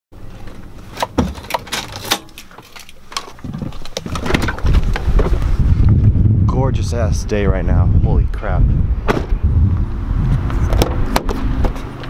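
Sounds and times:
wind buffeting microphone: 0:03.5 - 0:12.0.

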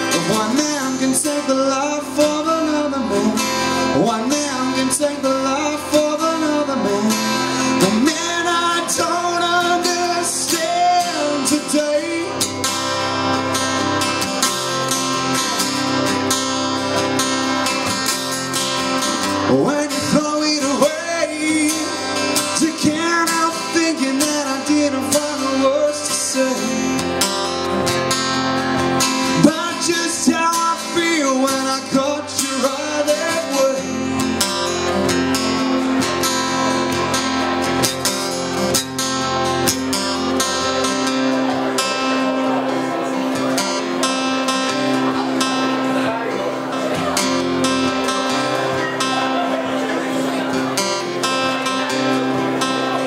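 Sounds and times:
man singing: 0:00.0 - 0:13.4, 0:19.1 - 0:27.9, 0:29.0 - 0:36.8
acoustic guitar strumming: 0:00.0 - 0:53.0.

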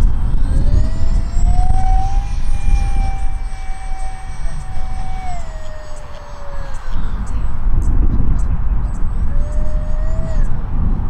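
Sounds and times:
electric ducted fan whine: 0:00.0 - 0:11.0.

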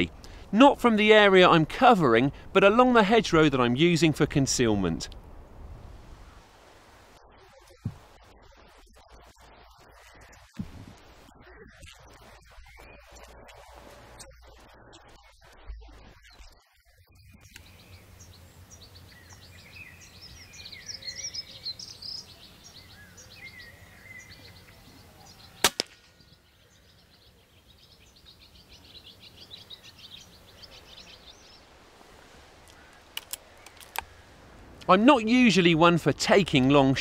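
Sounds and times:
small birds singing: 0:11.3 - 0:31.8
air rifle shot: 0:25.6 - 0:26.2.

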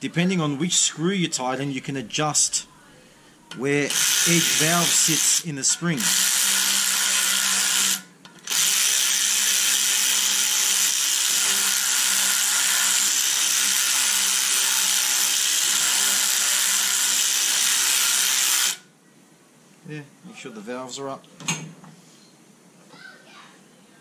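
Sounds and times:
power drill whirring: 0:03.9 - 0:05.4, 0:06.0 - 0:18.8.

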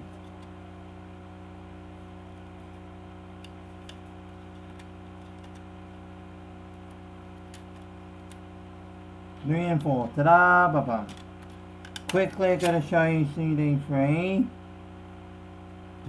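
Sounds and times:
low electrical hum: 0:00.0 - 0:16.0
plastic cd case clicks: 0:04.6 - 0:05.7, 0:11.0 - 0:12.8.

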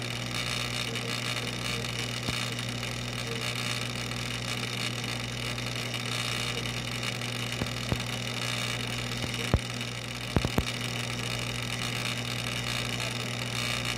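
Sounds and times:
aquarium equipment hum and hiss: 0:00.0 - 0:13.9
sharp clicks: 0:04.6 - 0:11.0.

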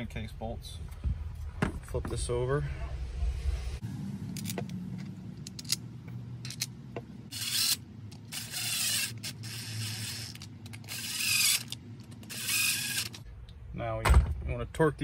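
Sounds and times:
ratchet clicking: 0:07.3 - 0:13.2.

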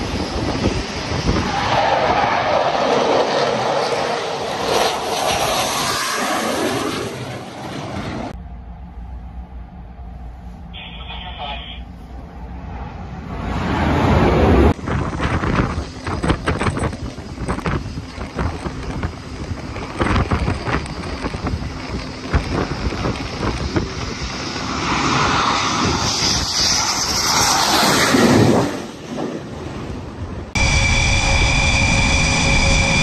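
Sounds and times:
wind buffeting microphone: 0:00.0 - 0:02.3, 0:13.0 - 0:27.3
fighter jet engine roar: 0:00.0 - 0:33.0.

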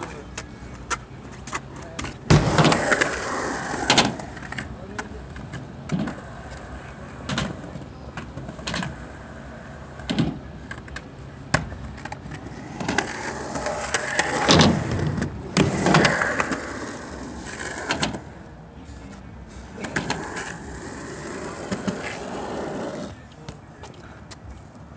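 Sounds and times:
skateboard clacks: 0:00.0 - 0:18.4
skateboard wheels rolling over concrete: 0:00.0 - 0:18.5, 0:19.6 - 0:23.6.

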